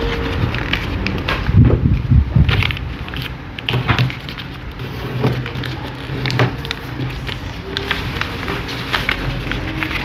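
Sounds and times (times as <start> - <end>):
paper rustling and crackling: 0.0 - 10.0.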